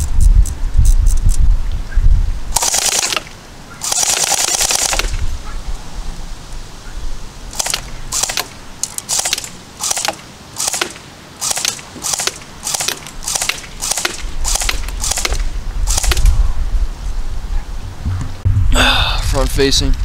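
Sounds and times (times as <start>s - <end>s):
airsoft rifle firing: 2.5s - 5.2s, 7.5s - 16.3s
low rumble: 15.4s - 20.0s.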